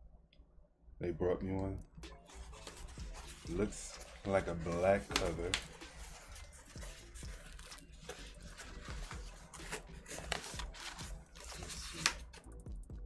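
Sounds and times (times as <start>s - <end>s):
cardboard scraping and rustling: 2.3s - 12.2s.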